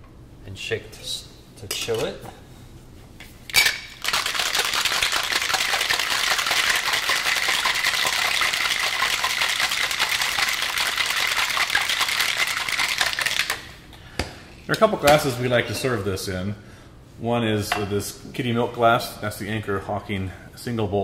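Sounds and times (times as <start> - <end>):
ice cubes rattling in shaker: 4.0 - 13.7.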